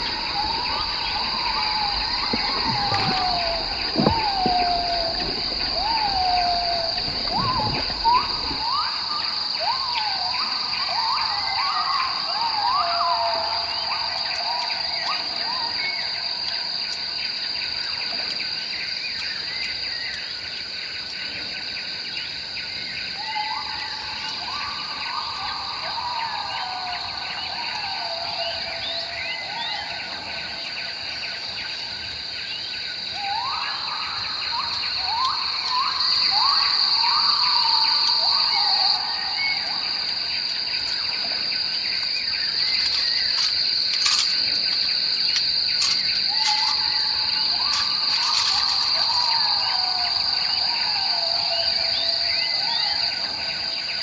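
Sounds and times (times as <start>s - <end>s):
rising bird calls: 0.0s - 14.0s, 33.2s - 52.0s
high-pitched insect drone: 0.0s - 20.8s, 23.2s - 54.0s.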